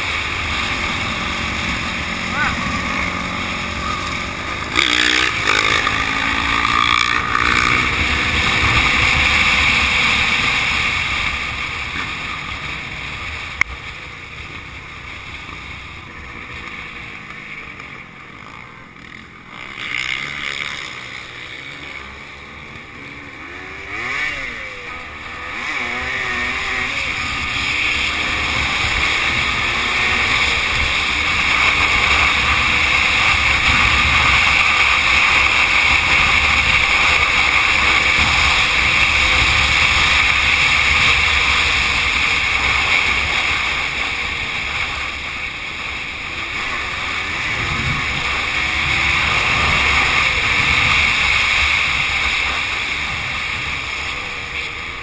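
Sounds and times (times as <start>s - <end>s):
dirt bike engine revving: 0.0s - 55.0s
wind noise on microphone: 23.7s - 55.0s.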